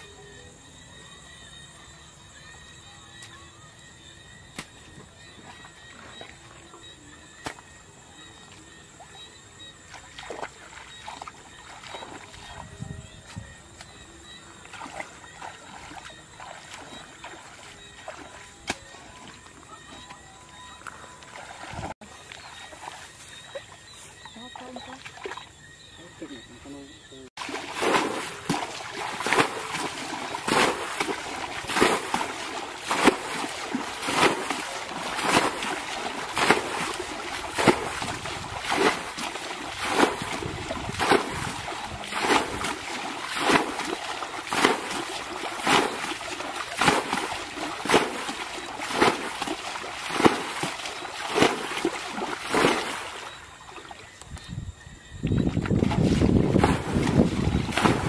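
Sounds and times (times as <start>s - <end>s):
bucket splashing water: 9.0s - 25.5s, 27.4s - 54.1s, 55.3s - 58.0s.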